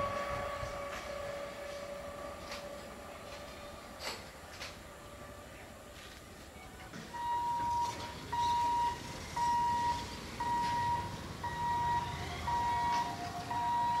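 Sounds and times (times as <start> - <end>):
electronic warning beeps: 6.6 - 14.0
lower beep tone: 6.6 - 14.0.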